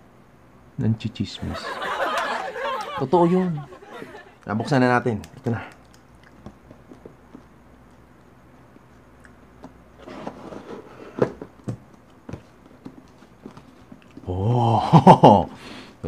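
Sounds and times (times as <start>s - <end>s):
man's voice: 2.9s - 3.7s, 4.5s - 5.6s.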